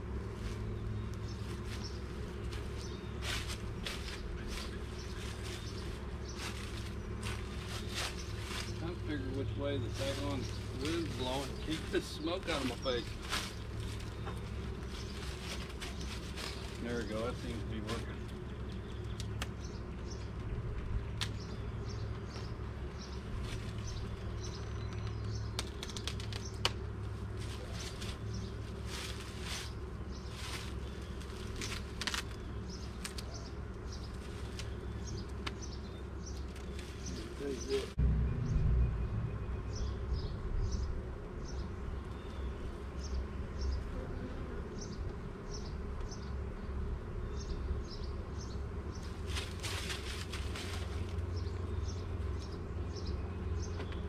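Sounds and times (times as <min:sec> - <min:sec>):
bees buzzing: 0:00.0 - 0:54.0
low rumble: 0:37.8 - 0:41.4.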